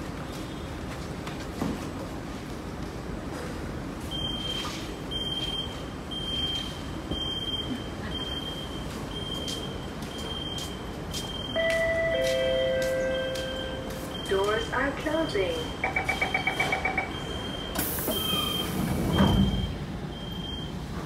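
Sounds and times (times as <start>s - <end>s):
train running noise: 5.7s - 21.0s
electronic beep: 15.6s - 20.7s.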